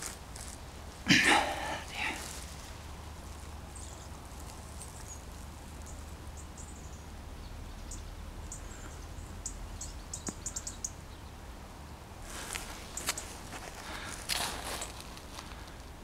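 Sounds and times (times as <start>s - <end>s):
small birds chirping: 1.4s - 11.4s.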